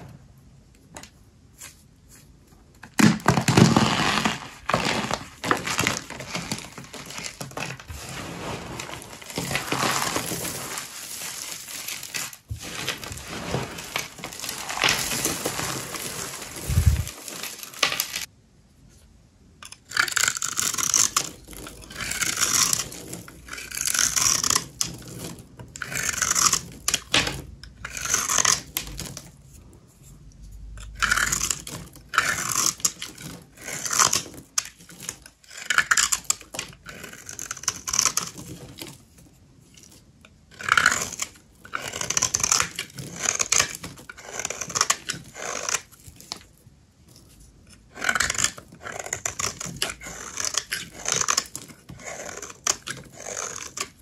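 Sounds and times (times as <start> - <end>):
knife scraping soap: 19.6 - 27.1, 27.7 - 54.0.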